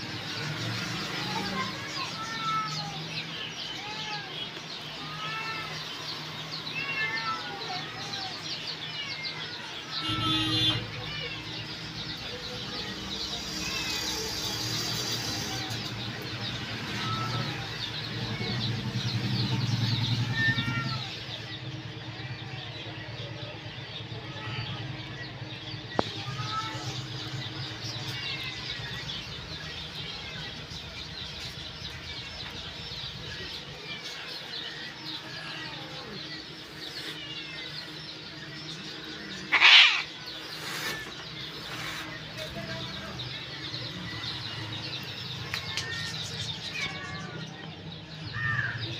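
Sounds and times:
small birds chirping: 0:00.0 - 0:48.9
cat hissing: 0:39.5 - 0:42.1.

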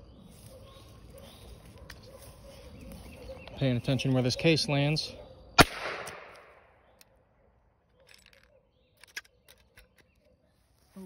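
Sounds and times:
gunshot echo: 0:05.6 - 0:06.7.

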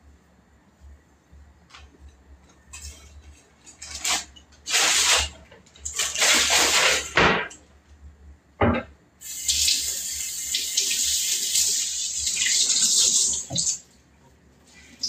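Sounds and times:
plastic bag rustling: 0:03.4 - 0:07.2.

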